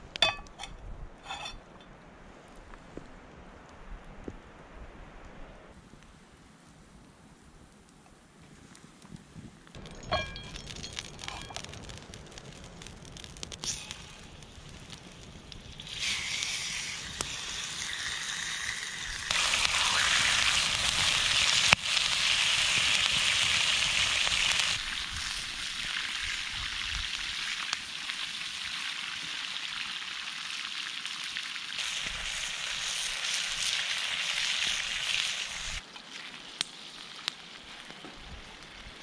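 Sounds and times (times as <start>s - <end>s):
steak sizzling in a frying pan: 13.6s - 36.3s.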